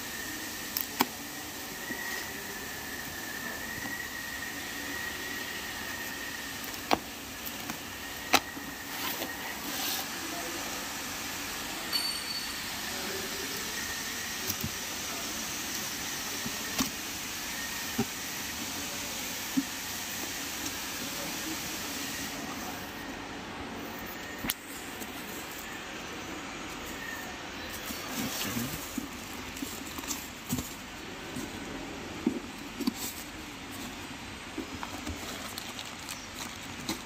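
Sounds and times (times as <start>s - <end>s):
steady background noise: 0.0s - 37.0s
box rustling: 27.7s - 37.0s.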